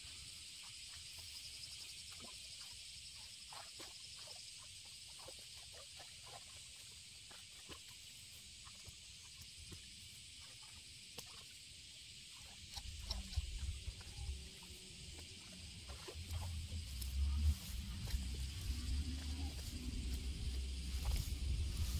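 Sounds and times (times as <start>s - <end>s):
high insect drone: 0.0s - 21.9s
low rumble: 13.6s - 21.9s
grass being cut by hand: 15.8s - 21.9s.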